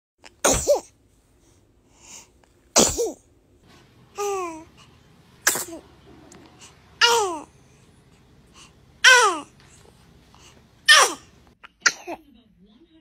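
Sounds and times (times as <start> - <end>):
baby sneezing: 0.4 - 1.0, 2.8 - 3.2, 5.4 - 5.9, 7.0 - 7.5, 9.0 - 9.5, 10.9 - 12.2
baby cooing: 4.2 - 4.7, 5.5 - 7.5, 9.0 - 9.6, 10.9 - 12.1.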